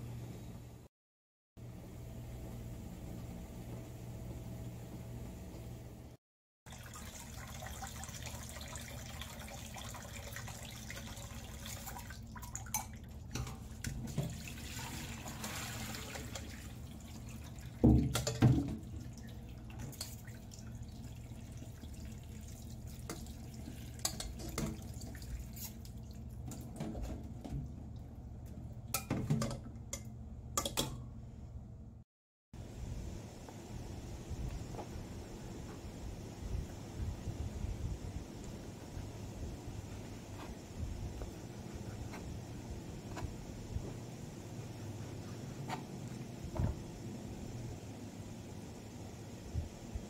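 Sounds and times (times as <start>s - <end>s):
water splashing into a sink: 6.7s - 27.7s.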